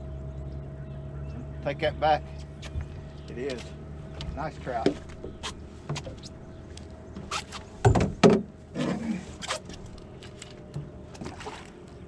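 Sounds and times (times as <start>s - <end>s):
knocks and thumps on boat: 4.2s - 6.3s, 7.1s - 9.1s, 10.7s - 11.8s
water splashing: 11.1s - 12.0s.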